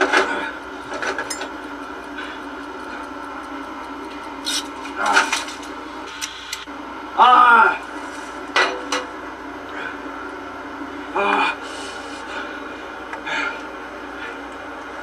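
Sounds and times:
steady hum: 0.0 - 15.0.

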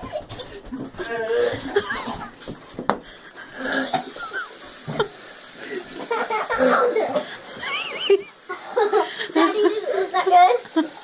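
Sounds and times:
people laughing: 0.0 - 2.4, 5.7 - 11.0
man retching and gagging: 3.4 - 8.7.

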